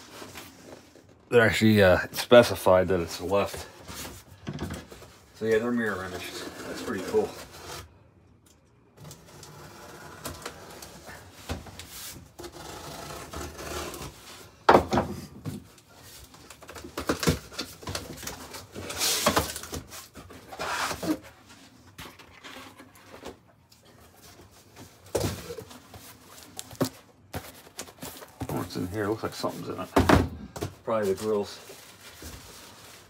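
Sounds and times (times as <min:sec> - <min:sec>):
cardboard rustling and scraping: 0:03.0 - 0:08.0, 0:15.5 - 0:23.4, 0:24.0 - 0:33.0.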